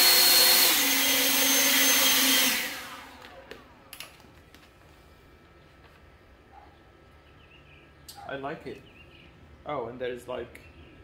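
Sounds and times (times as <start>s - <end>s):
leaf blower running: 0.0s - 3.6s.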